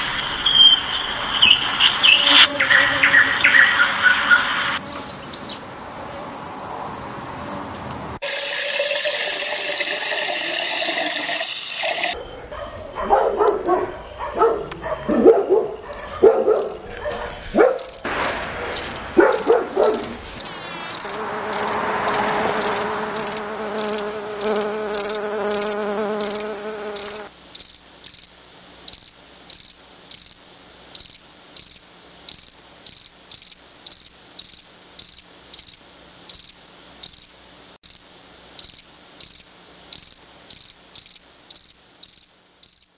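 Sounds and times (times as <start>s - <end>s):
cricket chirping: 15.9s - 16.8s, 17.8s - 28.3s, 28.9s - 38.0s, 38.6s - 42.9s
loud steady hiss: 20.2s - 21.2s.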